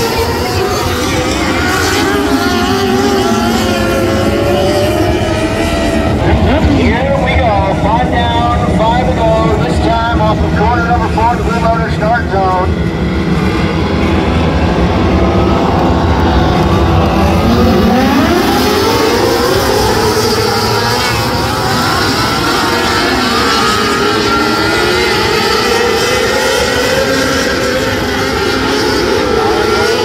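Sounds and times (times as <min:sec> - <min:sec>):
racing car engines revving: 0:00.0 - 0:30.0.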